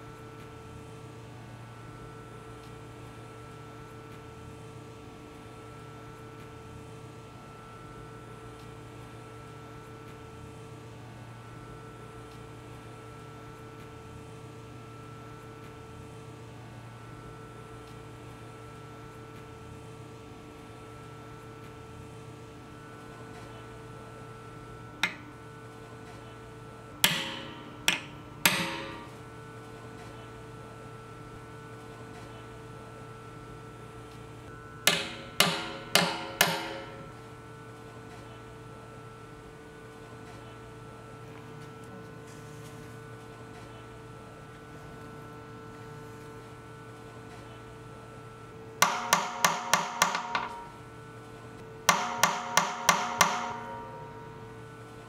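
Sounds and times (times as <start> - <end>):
hammer tapping on steel iron: 25.0 - 25.3, 27.0 - 29.1, 34.9 - 37.1, 48.8 - 50.8, 51.9 - 54.1.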